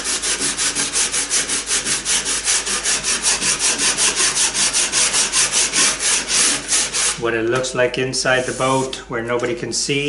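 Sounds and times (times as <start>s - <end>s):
sandpaper scratching on wood: 0.0s - 7.2s, 8.2s - 8.9s.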